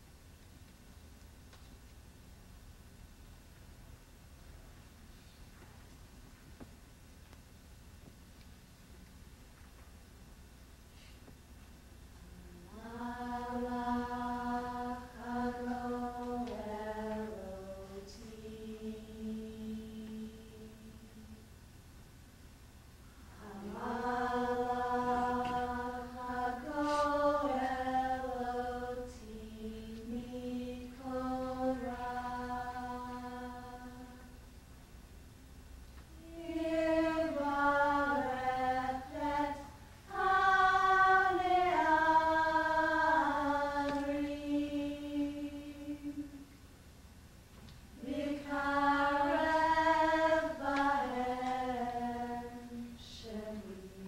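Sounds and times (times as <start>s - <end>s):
person chanting: 12.5s - 21.4s, 23.4s - 34.3s.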